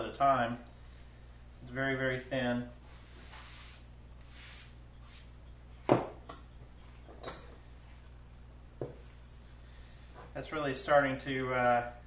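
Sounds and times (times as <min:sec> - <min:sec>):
hand sweeping wood shavings: 0:03.1 - 0:05.3.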